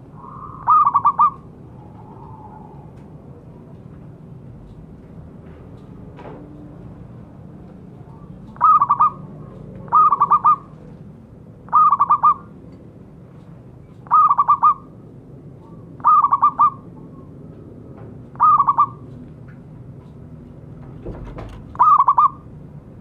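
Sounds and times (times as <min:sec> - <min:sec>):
dove calling: 0:00.0 - 0:02.8, 0:08.1 - 0:10.9, 0:11.6 - 0:12.6, 0:14.0 - 0:15.0, 0:15.6 - 0:17.4, 0:18.3 - 0:19.2, 0:21.7 - 0:22.5.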